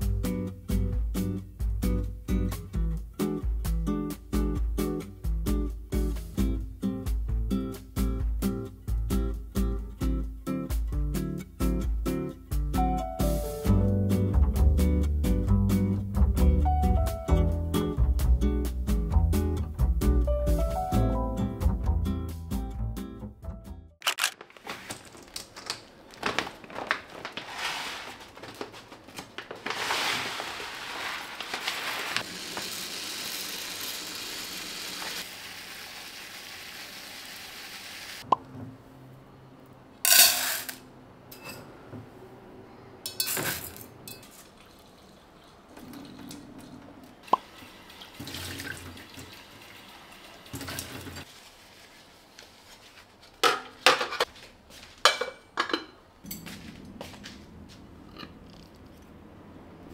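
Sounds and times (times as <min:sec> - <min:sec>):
dry rice grains clattering: 0:29.5 - 0:32.9.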